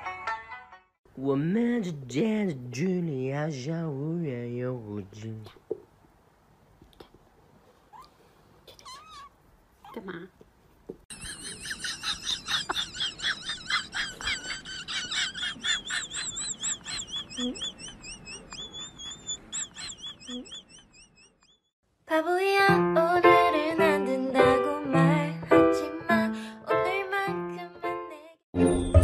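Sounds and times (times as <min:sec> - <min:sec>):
animal calls: 0:11.2 - 0:21.7
rapid high-pitched chirps: 0:15.6 - 0:21.7.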